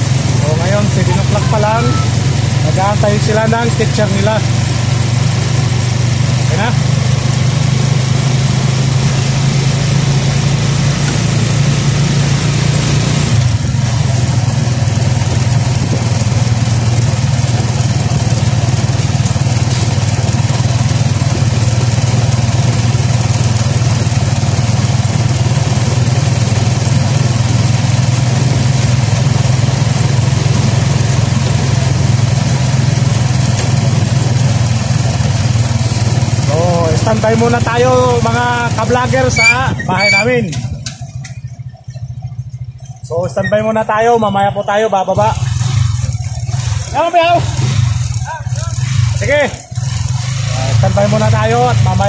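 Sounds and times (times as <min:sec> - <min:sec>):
wind and road noise: 0:00.0 - 0:43.5
motorcycle engine running: 0:00.0 - 0:52.0.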